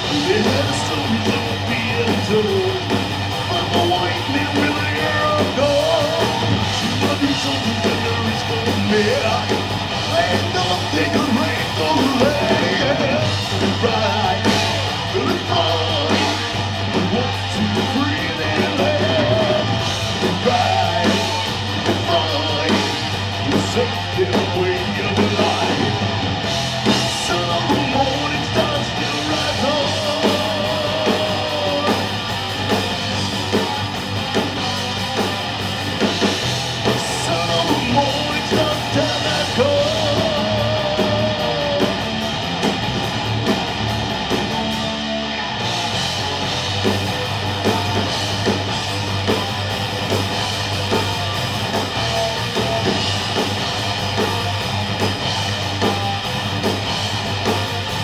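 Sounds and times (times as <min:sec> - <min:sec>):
person singing: 0:00.0 - 0:16.5, 0:17.1 - 0:25.9, 0:27.2 - 0:32.2, 0:36.9 - 0:42.1
live metal band playing: 0:00.0 - 0:58.0.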